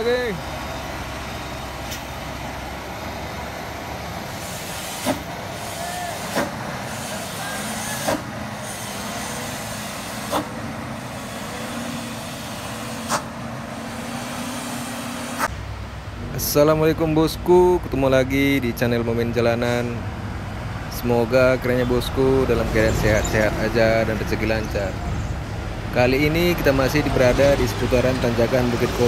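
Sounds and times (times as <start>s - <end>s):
truck engine and tyre rumble: 0.0s - 29.0s
air brakes hissing: 4.2s - 15.5s.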